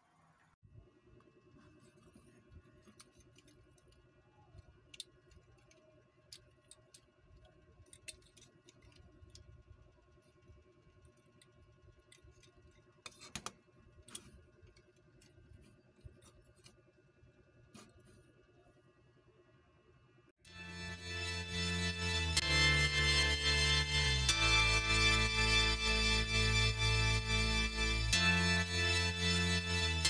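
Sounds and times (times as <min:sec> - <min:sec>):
low room hum: 0:00.0 - 0:30.0
plastic model parts clicking: 0:04.6 - 0:09.5.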